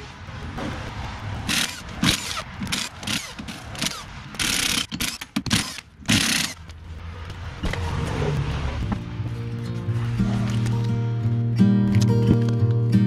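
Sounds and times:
impact wrench bursts: 1.5s - 6.6s.

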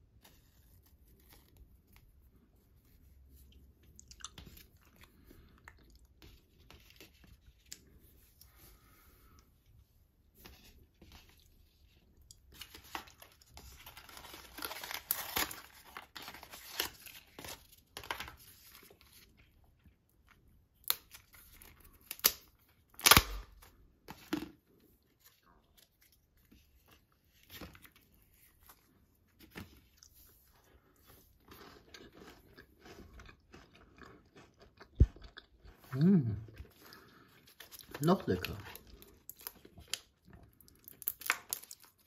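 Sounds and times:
packaging crinkling and tearing: 12.4s - 19.5s, 20.8s - 24.5s, 37.4s - 42.0s.

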